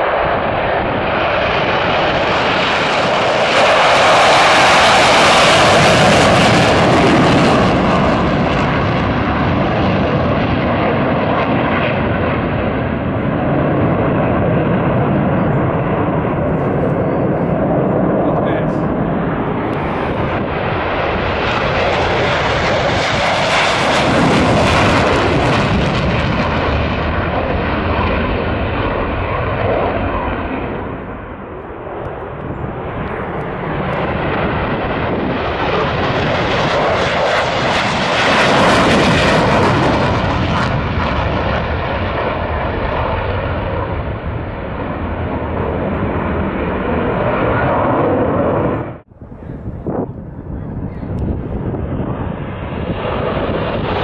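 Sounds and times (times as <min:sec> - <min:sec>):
jet engines flying past: 0:00.0 - 0:54.0.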